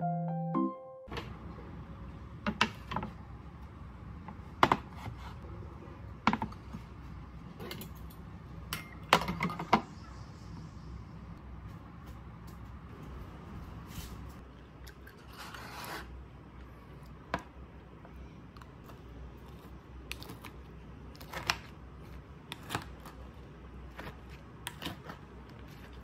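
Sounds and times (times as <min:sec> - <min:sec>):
piano music: 0:00.0 - 0:01.1
room hum: 0:00.0 - 0:26.0.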